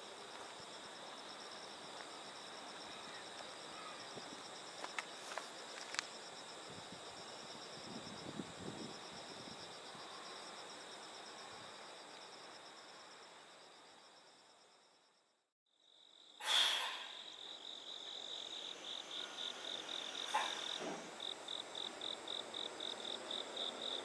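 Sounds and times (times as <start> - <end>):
insects trilling high: 0.6 - 12.8, 15.8 - 24.0
short loud burst of noise: 16.4 - 17.2
insect trilling in quick pulses: 16.4 - 17.6.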